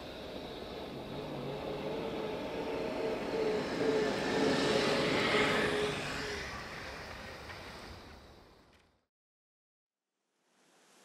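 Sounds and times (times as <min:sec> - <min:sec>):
van driving past: 0:00.0 - 0:08.3.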